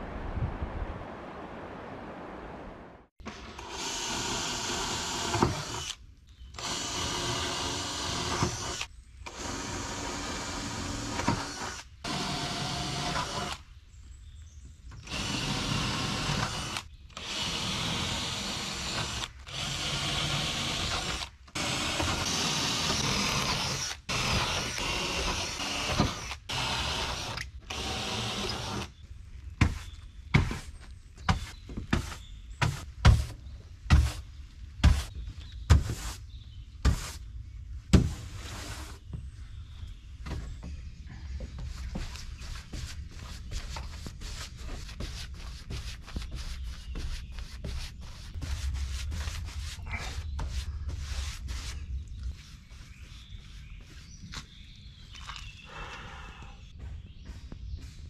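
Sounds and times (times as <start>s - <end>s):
cordless drill driving screws: 3.4s - 6.0s, 6.6s - 13.6s, 15.0s - 28.9s
brush sweeping boards: 29.6s - 36.2s, 36.8s - 37.2s, 38.0s - 39.1s, 41.6s - 54.5s.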